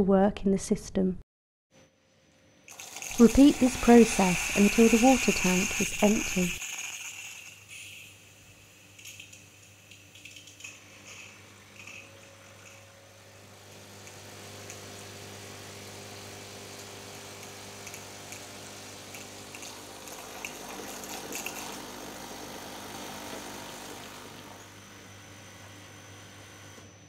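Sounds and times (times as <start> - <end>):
water running into glass bowl: 2.7 - 7.7
espresso machine pump humming: 2.7 - 27.0.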